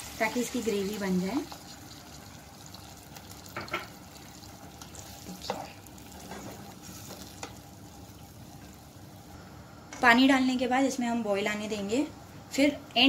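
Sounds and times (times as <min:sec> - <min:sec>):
gravy sizzling in a pot: 0:00.0 - 0:09.6.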